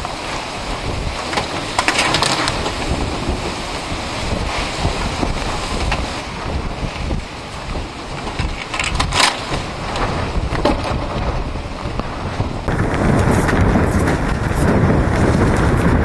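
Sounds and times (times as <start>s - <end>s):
crackling burst: 0.0s - 16.0s
wind buffeting microphone: 0.0s - 16.0s.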